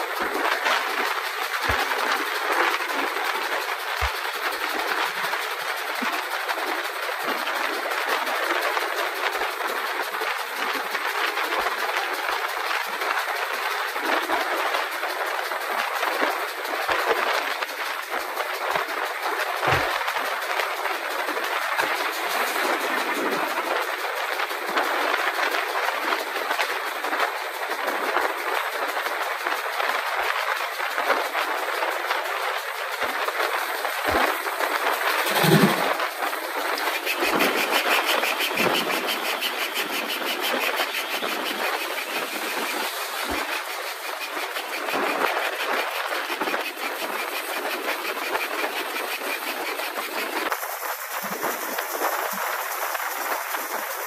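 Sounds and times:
train wheels rolling: 0:00.0 - 0:54.0
wind rushing: 0:34.0 - 0:38.0.

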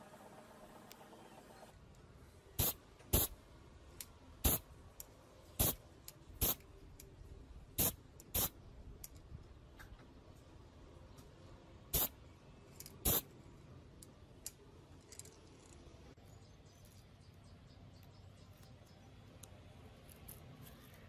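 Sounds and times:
spray paint hissing: 0:02.6 - 0:03.4, 0:04.4 - 0:04.7, 0:05.5 - 0:06.6, 0:07.7 - 0:08.6, 0:11.9 - 0:12.2, 0:13.0 - 0:13.3.

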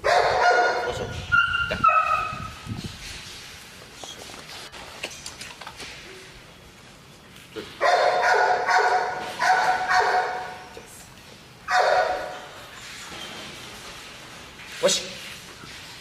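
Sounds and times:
dog barking high-pitched: 0:00.0 - 0:02.5, 0:07.8 - 0:10.7, 0:11.7 - 0:12.5.

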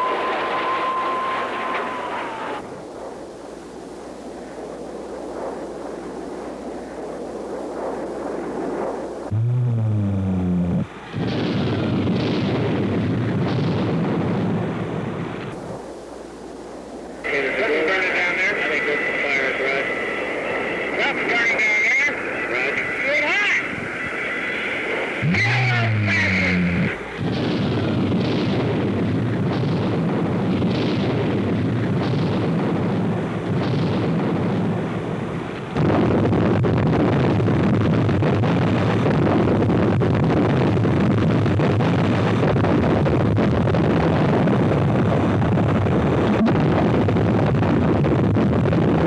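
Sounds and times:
low jet drone: 0:00.0 - 0:43.0, 0:44.1 - 0:47.9
low humming tone: 0:09.3 - 0:12.1
bombs exploding: 0:09.3 - 0:15.3, 0:25.2 - 0:49.0.

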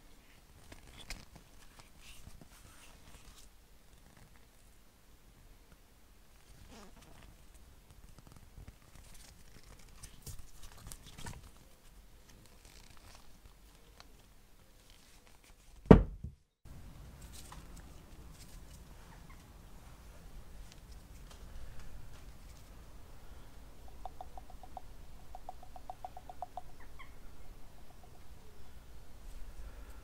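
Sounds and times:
rustling of gloves: 0:00.2 - 0:04.6, 0:06.4 - 0:15.8
loud thump: 0:15.9 - 0:16.4.

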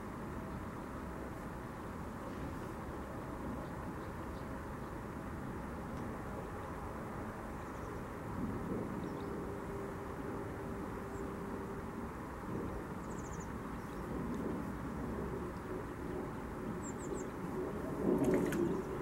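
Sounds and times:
faint steady hum: 0:00.0 - 0:19.0
low outdoor rumble: 0:00.0 - 0:19.0.

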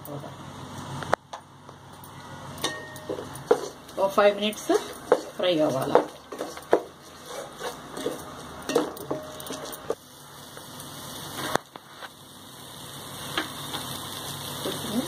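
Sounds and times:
onions sizzling in pot: 0:00.0 - 0:15.0
spoon scraping against pot: 0:04.6 - 0:10.0.

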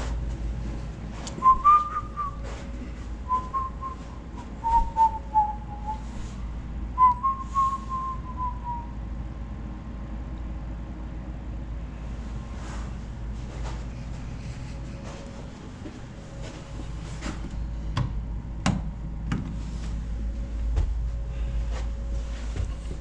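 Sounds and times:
low steady rumble: 0:00.0 - 0:23.0
person whistling a tune: 0:01.4 - 0:02.4, 0:03.3 - 0:06.1, 0:07.0 - 0:08.9.

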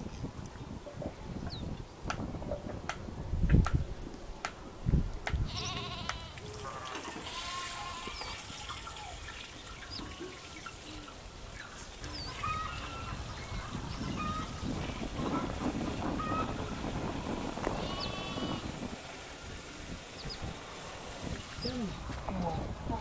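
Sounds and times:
livestock bleating: 0:05.5 - 0:06.4, 0:07.2 - 0:08.3, 0:17.8 - 0:18.6.

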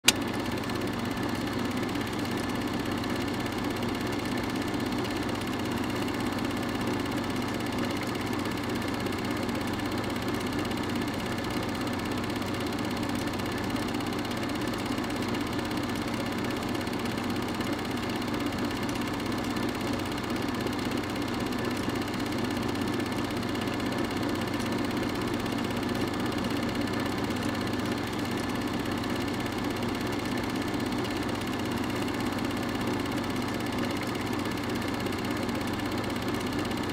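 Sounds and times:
film projector whirring: 0:00.0 - 0:36.9.

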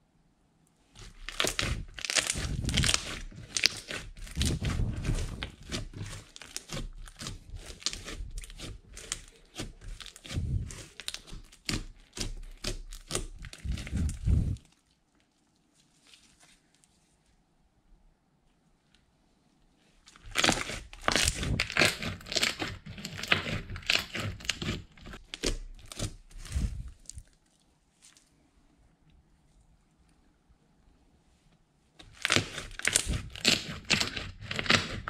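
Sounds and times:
faint slime squishes: 0:00.7 - 0:17.7, 0:18.4 - 0:35.0
slime crackling while kneaded: 0:01.0 - 0:16.9, 0:20.1 - 0:28.3, 0:32.0 - 0:35.0.

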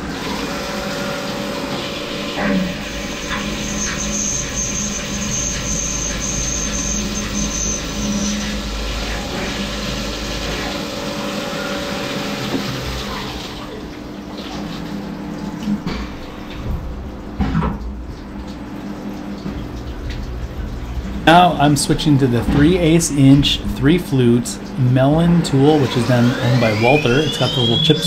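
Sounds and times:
mill drilling: 0:00.0 - 0:13.8, 0:21.1 - 0:28.0
coolant splashing: 0:00.0 - 0:28.0
high steady whine: 0:21.0 - 0:28.0.

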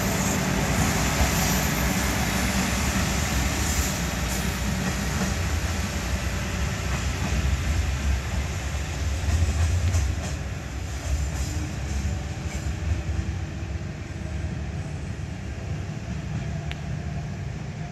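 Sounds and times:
diesel railcar engine rumble: 0:00.0 - 0:17.9.

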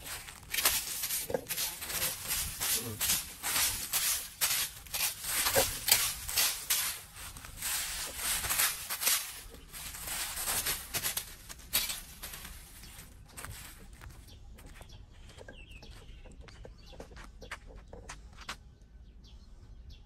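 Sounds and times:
rake rustling dry leaves on concrete: 0:00.0 - 0:14.2.

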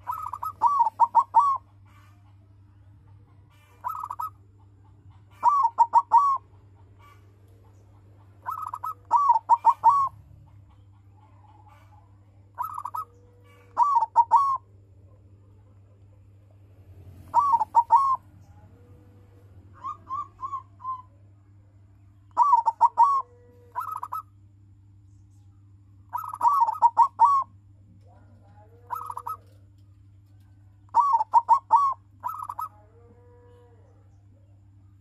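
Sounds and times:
dove cooing: 0:00.0 - 0:16.2, 0:16.9 - 0:21.2, 0:22.3 - 0:24.3, 0:26.1 - 0:34.2.

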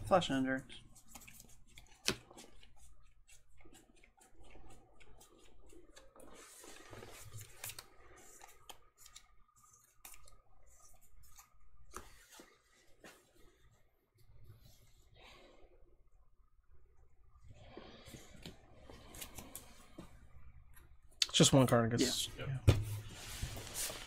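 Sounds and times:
trading cards clicking and rustling: 0:00.6 - 0:10.5.

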